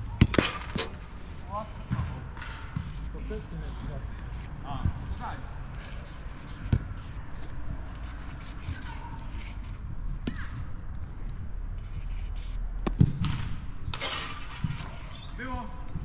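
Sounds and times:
marker rubbing on metal post: 0.4s - 9.9s, 11.6s - 13.0s, 13.9s - 15.6s
dull thuds: 1.9s - 3.0s.

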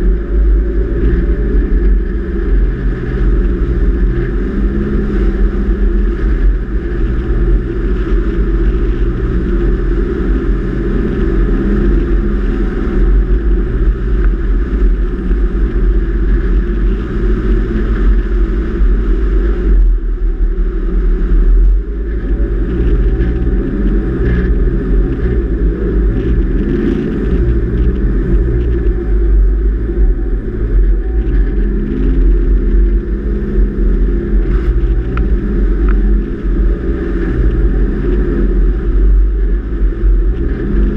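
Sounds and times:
heavy low rumble: 0.0s - 40.9s
vehicle engine and tyres on sand: 0.0s - 40.9s.

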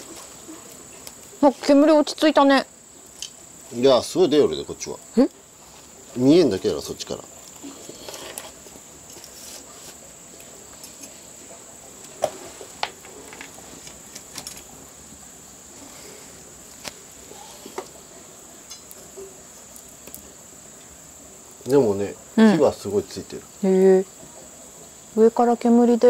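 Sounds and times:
crickets trilling: 0.0s - 26.0s
firewood knocking and clattering: 12.0s - 14.8s.

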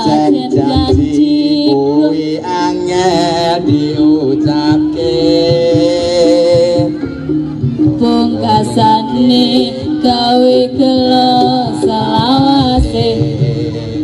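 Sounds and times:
drum beat: 0.0s - 1.6s
person singing long wavering notes: 0.0s - 14.0s.

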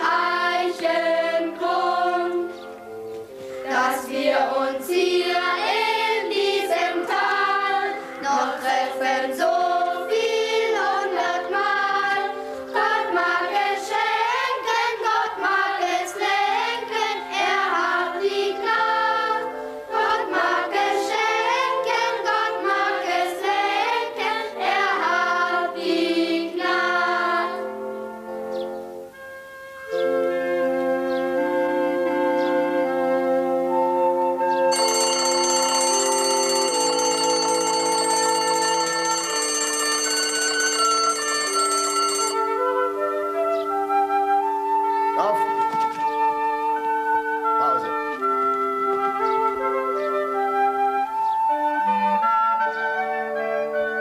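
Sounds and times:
choir singing: 0.0s - 2.8s, 3.6s - 28.0s.

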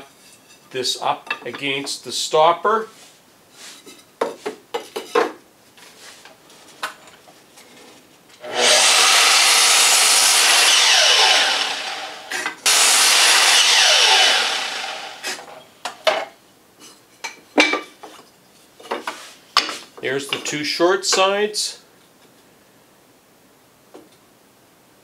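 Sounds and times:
mitre saw cutting wood: 8.4s - 15.5s
saw blade winding down: 8.4s - 15.5s.

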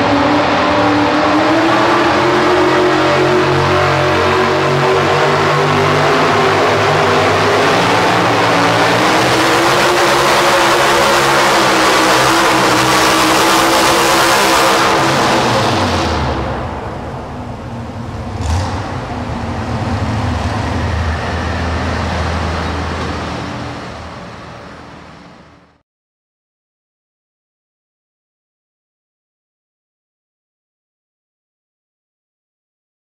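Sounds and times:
truck engine under load: 0.0s - 25.8s.

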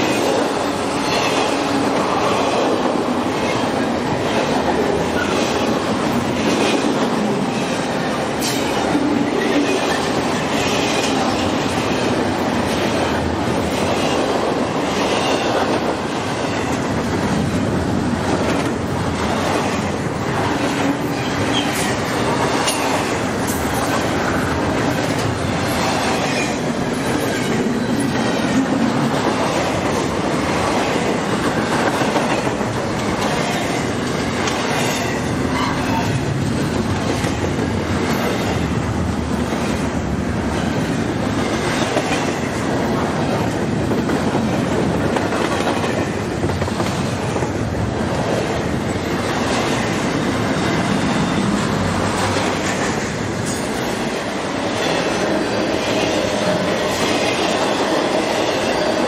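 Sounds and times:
train wheels clicking over rail joints: 0.0s - 59.0s
train wheels squealing: 21.1s - 22.0s.

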